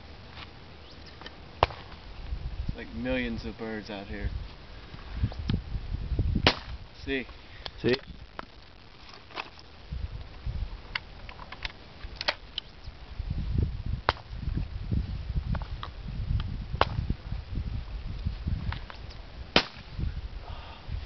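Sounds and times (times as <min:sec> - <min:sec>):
shotgun firing: 0:06.4 - 0:06.7, 0:19.6 - 0:19.9.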